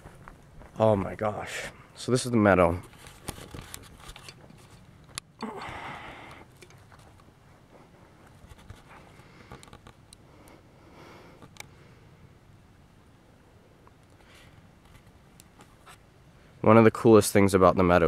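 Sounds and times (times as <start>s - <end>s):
faint footsteps: 0.0s - 1.7s, 2.7s - 10.0s
breathy rustle: 5.4s - 12.1s.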